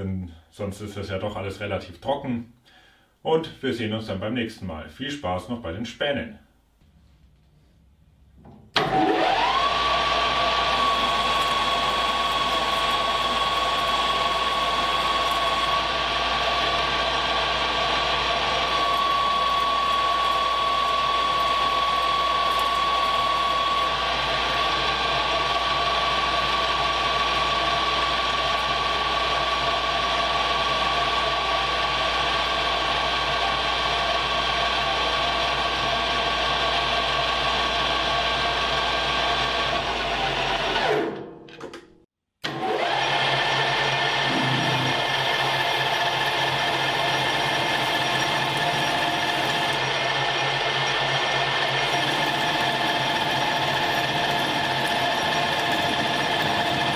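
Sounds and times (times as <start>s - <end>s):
lathe spindle whine: 8.8s - 41.0s, 42.4s - 56.9s
mechanical hum: 43.6s - 56.9s.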